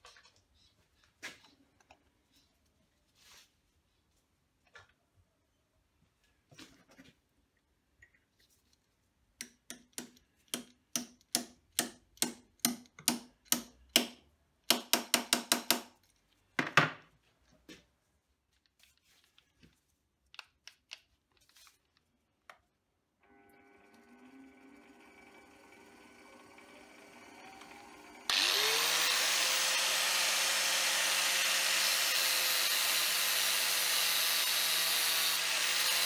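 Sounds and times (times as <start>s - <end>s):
lathe motor humming: 23.2s - 36.0s.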